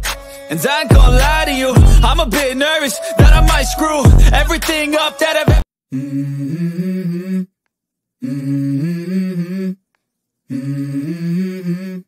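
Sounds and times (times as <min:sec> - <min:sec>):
low wordless vocal hum: 0:00.9 - 0:02.6, 0:03.2 - 0:04.8, 0:05.9 - 0:07.5, 0:08.2 - 0:09.8, 0:10.5 - 0:12.0.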